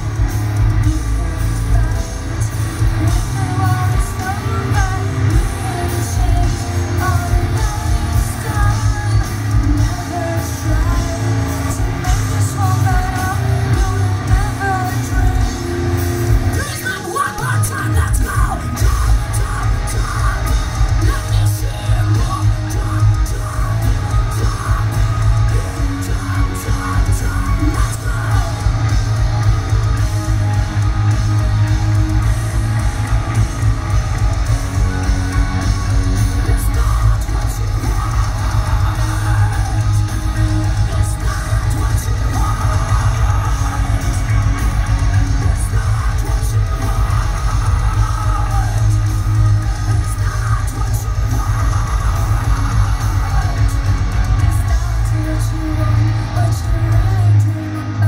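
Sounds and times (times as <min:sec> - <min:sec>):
live heavy metal band: 0:00.0 - 0:58.0
sung and screamed vocals: 0:00.0 - 0:58.0.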